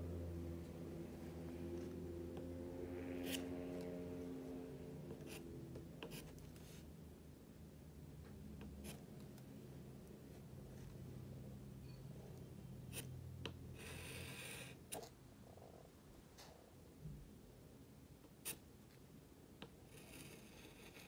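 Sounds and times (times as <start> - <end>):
pencil writing on paper: 5.0 - 6.8, 8.6 - 9.1, 13.8 - 15.1, 19.6 - 21.0.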